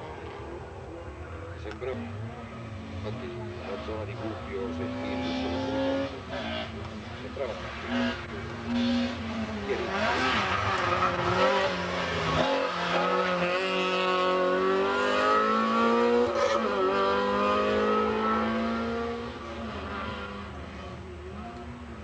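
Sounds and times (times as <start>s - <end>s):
race car engine accelerating: 1.9s - 21.9s.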